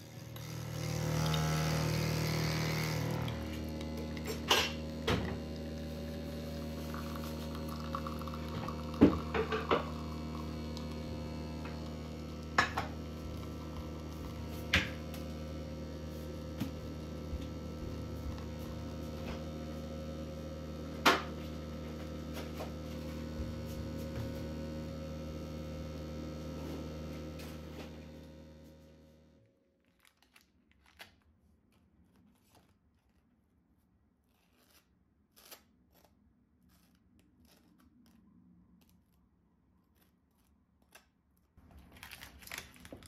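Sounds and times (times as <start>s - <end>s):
steady appliance hum: 0.0s - 29.5s.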